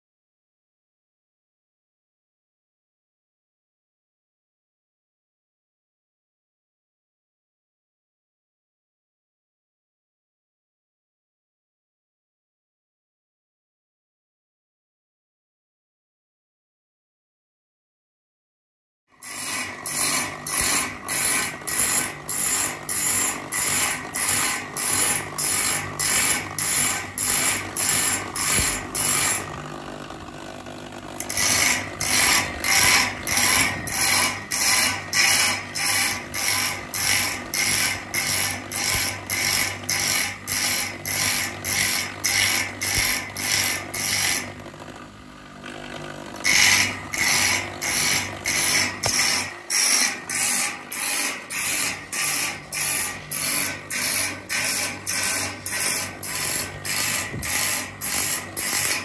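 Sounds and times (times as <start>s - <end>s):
grinding wheel rasping on blade: 19.2s - 59.0s.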